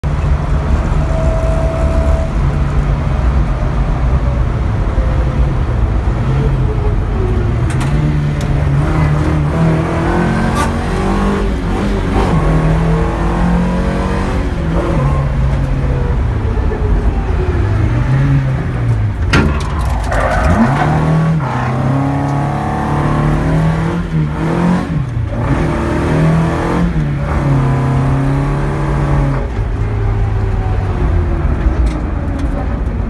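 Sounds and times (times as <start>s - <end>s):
rally car engine revving: 7.4s - 30.1s.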